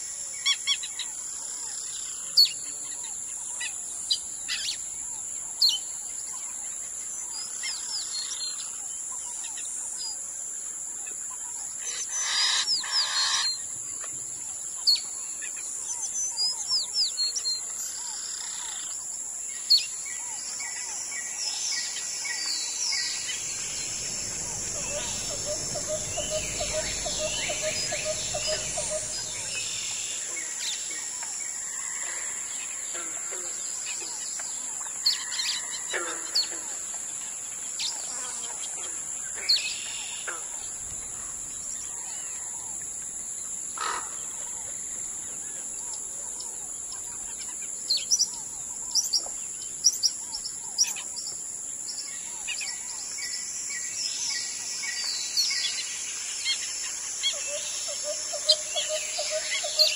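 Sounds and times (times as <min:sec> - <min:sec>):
steady high-pitched hiss: 0:00.0 - 0:59.9
birds chirping and whistling: 0:22.9 - 0:30.2.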